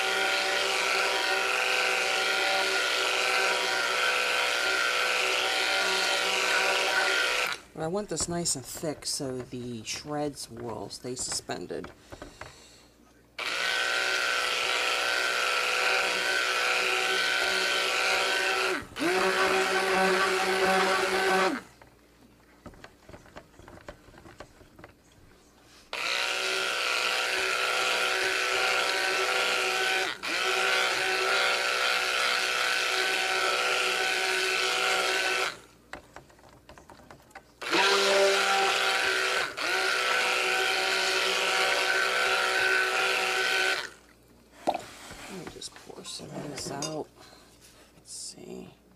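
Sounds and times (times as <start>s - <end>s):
stick blender motor humming: 0.0s - 12.5s, 13.4s - 21.8s, 25.9s - 36.0s, 37.6s - 44.1s.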